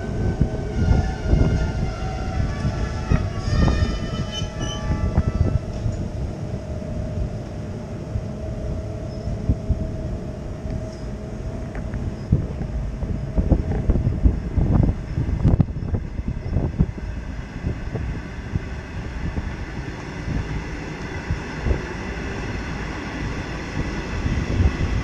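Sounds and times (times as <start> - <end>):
high steady whines: 0.0 - 25.0
train wheels rumbling on rails: 0.0 - 25.0
low steady tone: 4.4 - 16.5.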